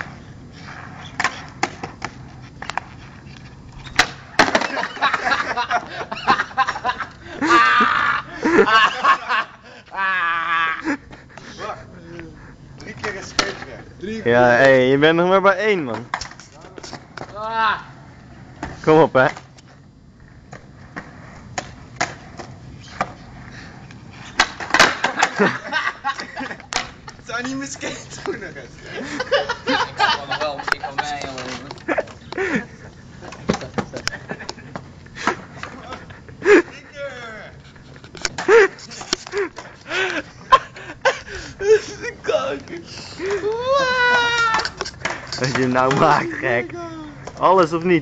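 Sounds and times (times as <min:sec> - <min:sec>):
skateboard clattering on concrete: 0:00.0 - 0:03.1, 0:03.8 - 0:07.0, 0:12.8 - 0:13.8, 0:15.9 - 0:17.4, 0:20.5 - 0:23.3, 0:24.2 - 0:28.6, 0:29.7 - 0:32.6, 0:33.2 - 0:36.0, 0:44.2 - 0:46.4
skateboard wheels rolling on concrete: 0:00.0 - 0:48.0
skateboard tail snapping down: 0:03.9 - 0:05.2, 0:20.5 - 0:23.2, 0:24.3 - 0:25.4
skateboard tail pop: 0:04.0 - 0:04.8, 0:24.4 - 0:25.4
people shouting and laughing: 0:04.7 - 0:12.1, 0:17.3 - 0:18.0, 0:38.4 - 0:44.9
skateboard rolling clicks: 0:30.6 - 0:32.4.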